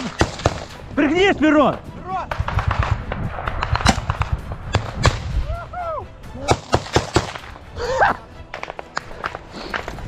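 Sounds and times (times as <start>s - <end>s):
gunshots: 0.0s - 0.8s, 2.3s - 5.4s, 6.5s - 7.6s
low rumble: 2.3s - 6.3s
person shouting: 5.4s - 6.5s.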